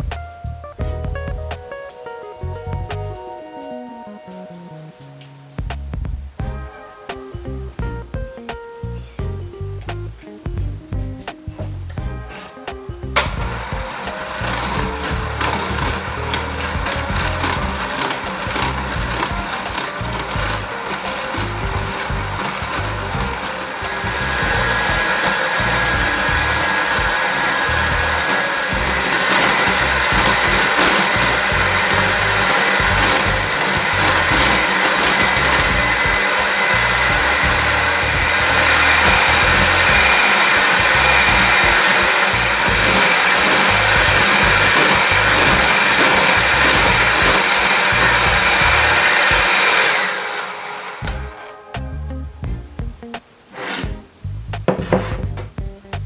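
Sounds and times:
electric hand mixer running: 0:13.3 - 0:51.7.

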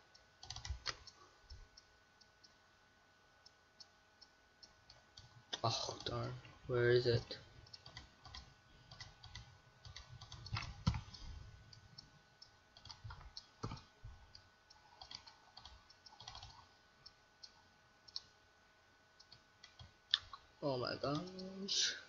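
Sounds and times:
keyboard keystrokes: 0:00.4 - 0:01.1, 0:07.7 - 0:11.2, 0:15.0 - 0:16.6
mouse clicks: 0:07.7 - 0:11.8, 0:12.4 - 0:16.7, 0:17.4 - 0:18.4, 0:19.2 - 0:20.4.

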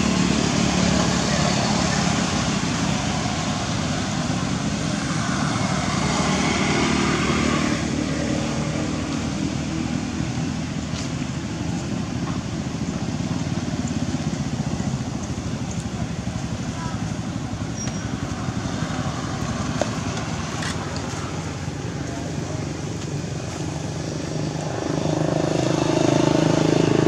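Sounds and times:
vehicle engine running: 0:08.5 - 0:27.0.

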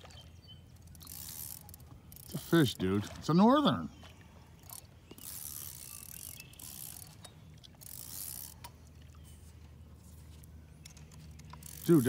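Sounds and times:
fishing reel whirring and clicking: 0:00.7 - 0:02.8, 0:04.6 - 0:09.2, 0:10.0 - 0:12.0.

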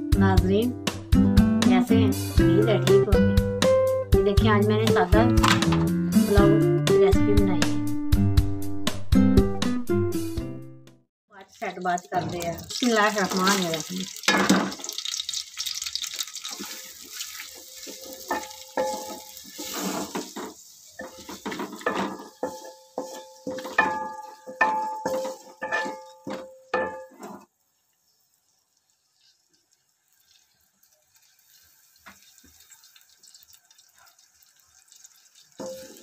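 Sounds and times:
wooden spoon scraping a pot: 0:16.4 - 0:27.5
metal pot ringing: 0:17.5 - 0:19.6, 0:21.8 - 0:27.2.

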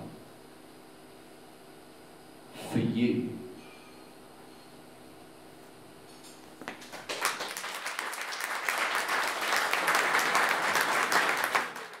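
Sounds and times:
audience applauding: 0:06.7 - 0:12.0.

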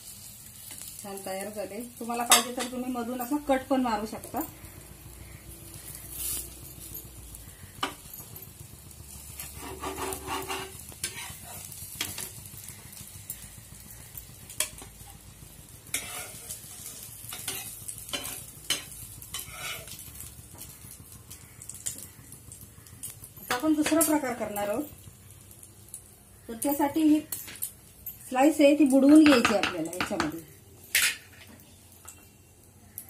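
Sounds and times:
omelette sizzling in a pan: 0:00.0 - 0:33.0
metal spatula scraping a pan: 0:09.2 - 0:12.2, 0:15.9 - 0:20.1.

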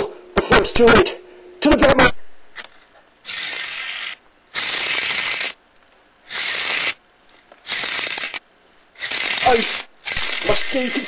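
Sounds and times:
toy car mechanism ratcheting: 0:03.3 - 0:05.6, 0:06.3 - 0:07.0, 0:07.6 - 0:08.4, 0:09.0 - 0:11.0.

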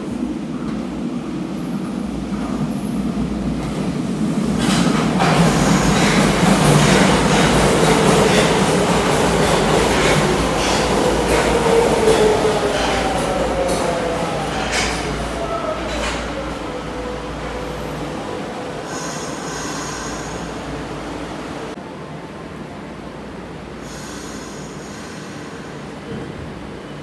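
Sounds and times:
subway train rumble: 0:00.0 - 0:27.0
train brakes whine: 0:04.7 - 0:07.5, 0:08.2 - 0:20.6, 0:23.8 - 0:26.1.

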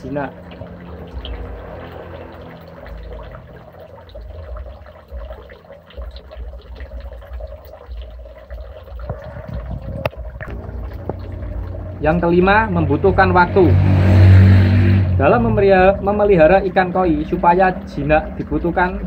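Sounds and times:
fish splashing at surface: 0:00.0 - 0:19.0
water pouring into pond: 0:00.0 - 0:19.0.

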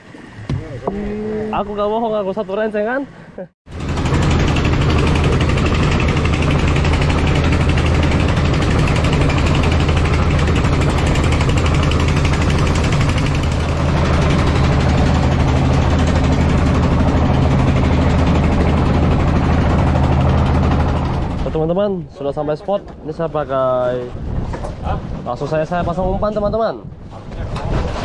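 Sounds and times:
wind: 0:00.0 - 0:28.0
boat engine running: 0:03.7 - 0:26.0.

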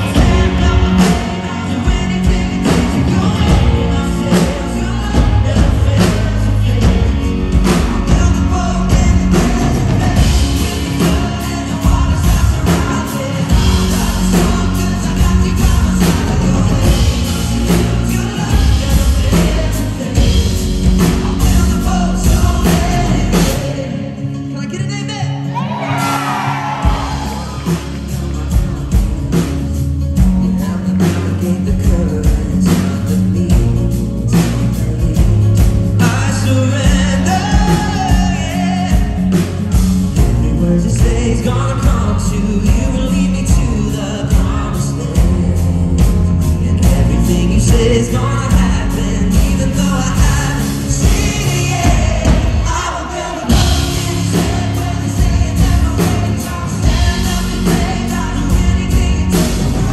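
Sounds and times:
steady drum beat: 0:00.0 - 0:24.0, 0:26.0 - 0:59.9
man singing into microphone: 0:00.0 - 0:29.3, 0:30.3 - 0:59.9
live band music: 0:00.0 - 0:59.9.

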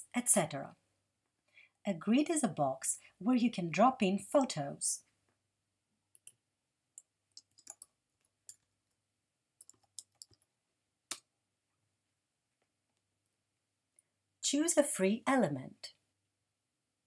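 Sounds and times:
computer keyboard keystrokes: 0:07.4 - 0:08.6, 0:09.6 - 0:10.5.

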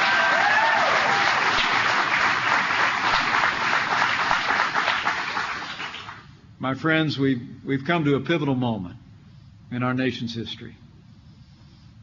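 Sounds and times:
crowd applauding: 0:00.0 - 0:06.3.

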